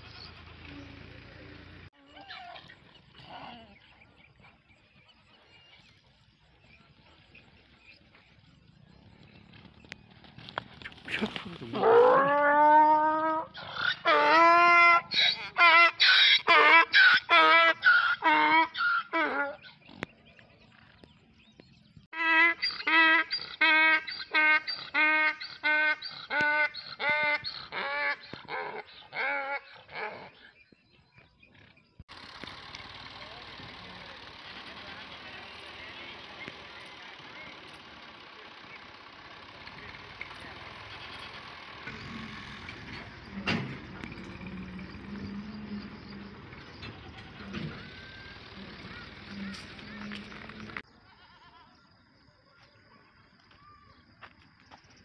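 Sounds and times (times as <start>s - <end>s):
engine running: 0.0s - 18.6s, 31.1s - 50.9s
outdoor noise: 0.0s - 55.0s
donkey braying: 11.0s - 19.9s, 22.2s - 30.6s.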